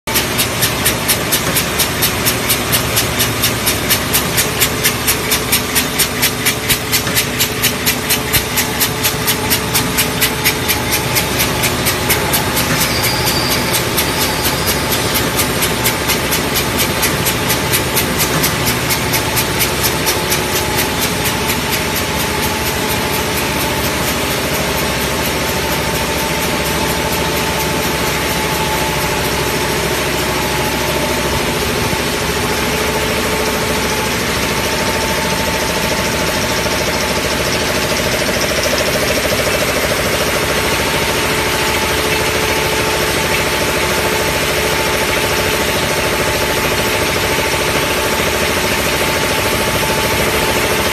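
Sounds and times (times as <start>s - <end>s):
fast regular conveyor clicking: 0.1s - 50.9s
machinery din with motor hum: 0.1s - 50.9s.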